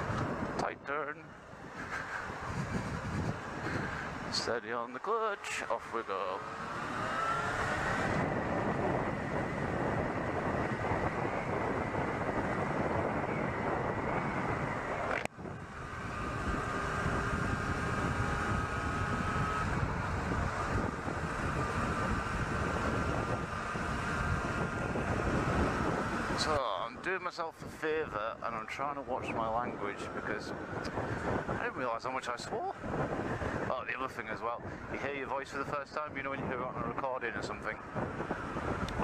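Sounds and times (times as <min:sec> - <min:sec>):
wind noise: 0:00.0 - 0:04.8, 0:06.4 - 0:39.0
motorcycle engine running: 0:01.8 - 0:26.6.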